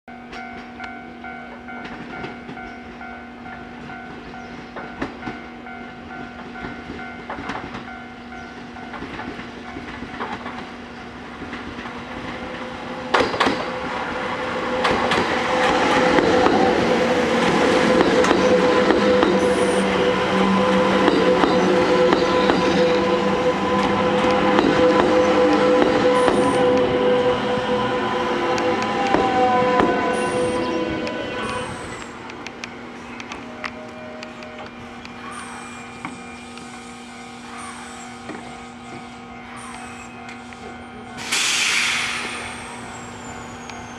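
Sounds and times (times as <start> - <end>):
electric train passing: 0.1 - 43.9
train wheels clicking over rail joints: 8.8 - 14.0, 14.7 - 19.8.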